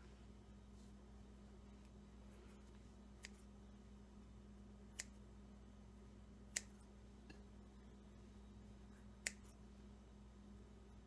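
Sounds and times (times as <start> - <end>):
low steady hum: 0.0 - 11.0
scissors blades clicking: 6.5 - 6.8.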